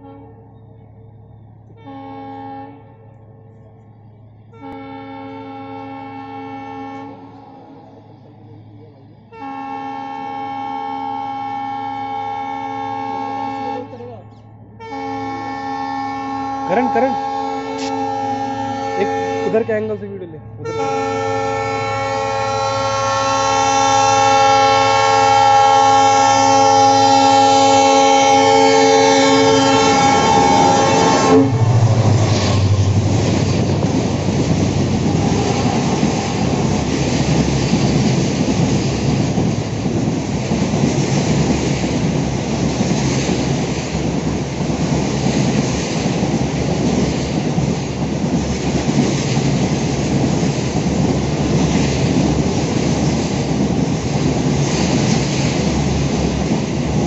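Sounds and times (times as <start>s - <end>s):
locomotive horn blast: 1.8s - 3.0s, 4.6s - 7.4s, 9.3s - 14.0s, 14.8s - 19.8s, 20.6s - 37.1s
train wheels clattering on rails: 31.8s - 57.0s.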